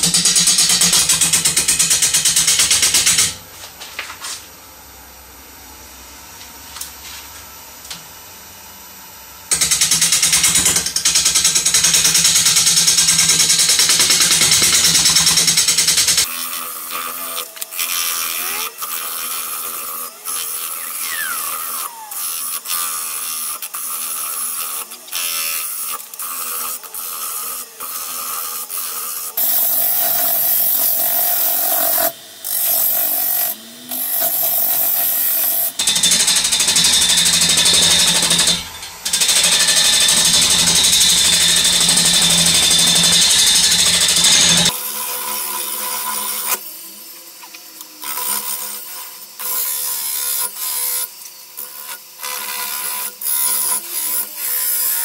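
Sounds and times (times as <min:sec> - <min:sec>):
wood lathe turning: 0:09.5 - 0:55.0
turning tool scraping wood: 0:13.0 - 0:46.6.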